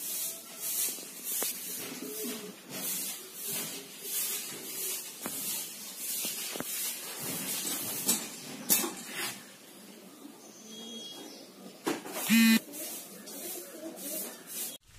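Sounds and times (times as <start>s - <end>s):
rustling: 0.0s - 9.5s.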